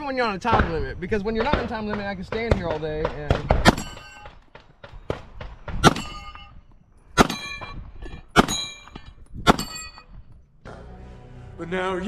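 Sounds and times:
bullets ringing steel plates: 0:03.6 - 0:04.4, 0:05.8 - 0:10.2.

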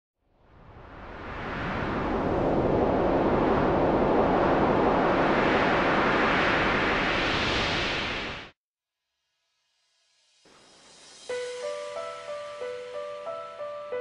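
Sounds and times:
steady wind-like rushing: 0:00.4 - 0:08.6.

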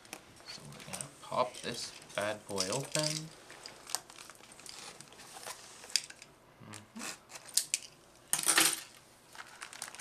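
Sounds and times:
plastic wrap rustling: 0:00.5 - 0:06.1, 0:09.3 - 0:10.0.

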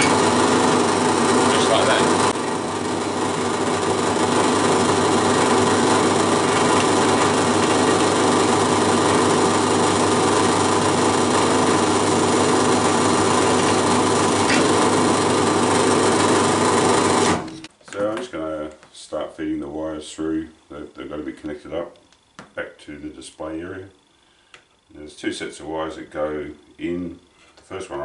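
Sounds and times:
drill press motor hum: 0:00.0 - 0:17.7.

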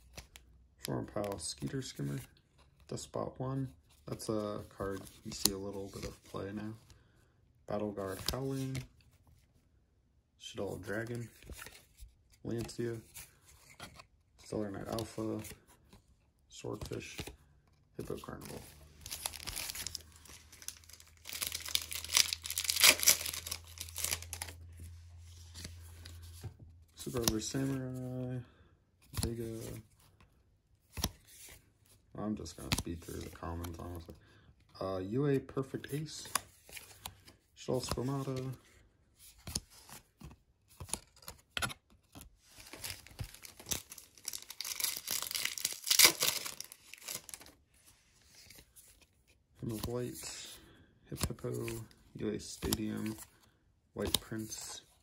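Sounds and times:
foil wrapper crinkling: 0:43.2 - 0:47.5.

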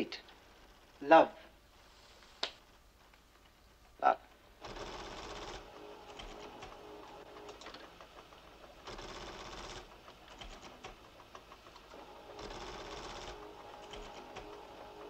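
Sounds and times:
mechanical computer chattering: 0:04.6 - 0:14.6.

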